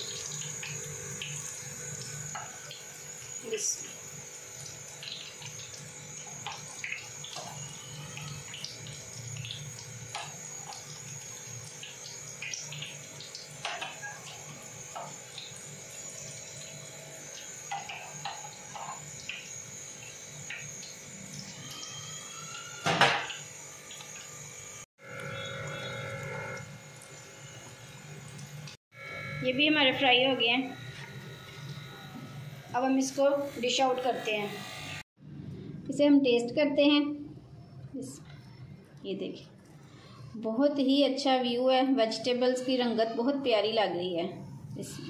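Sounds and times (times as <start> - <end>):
food sizzling in hot oil: 0.0 - 35.1.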